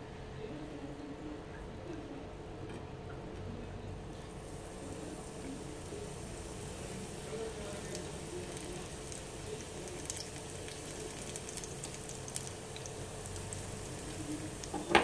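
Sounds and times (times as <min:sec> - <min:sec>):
leaves deep-frying in oil: 0:04.1 - 0:15.0
oil crackling and popping: 0:05.4 - 0:15.0.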